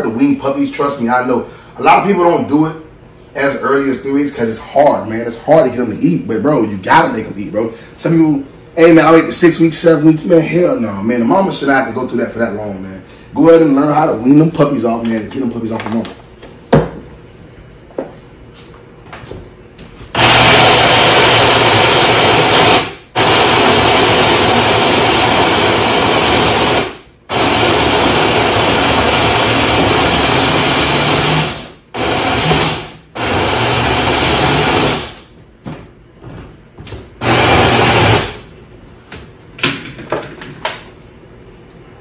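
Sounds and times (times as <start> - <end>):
blender running in pulses: 20.2 - 35.2, 37.2 - 38.4.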